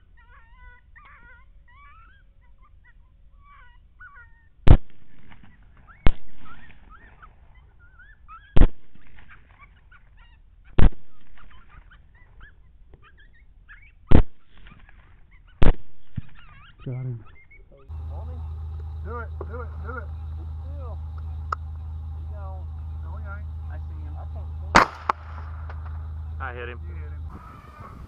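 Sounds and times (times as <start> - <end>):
coyotes yipping and howling: 0.0 - 28.0
suppressed rifle shots: 4.7 - 7.2, 8.6 - 9.6, 10.8 - 11.8, 14.1 - 15.0, 15.6 - 16.4, 24.7 - 26.2.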